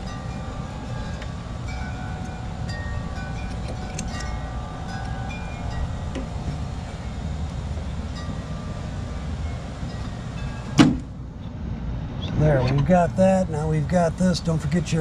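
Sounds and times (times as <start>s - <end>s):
low steady rumble: 0.0s - 15.0s.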